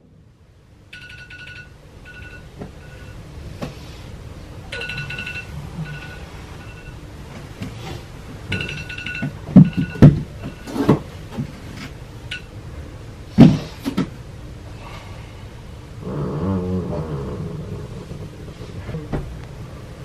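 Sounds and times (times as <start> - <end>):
phone alarm chimes: 1.0 - 3.2, 4.8 - 7.0, 8.5 - 10.7
bedding rustling and thudding: 4.8 - 12.1, 13.3 - 14.2, 18.6 - 20.0.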